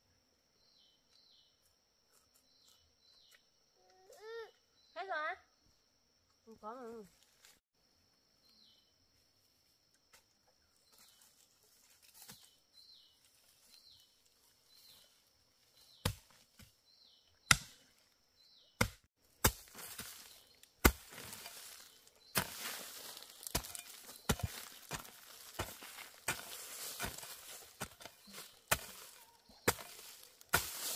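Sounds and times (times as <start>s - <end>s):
soil and dry leaves scraping: 6.8s - 7.6s, 10.8s - 17.2s, 17.8s - 30.9s
hoe chopping into earth: 17.4s - 17.9s, 18.8s - 30.9s.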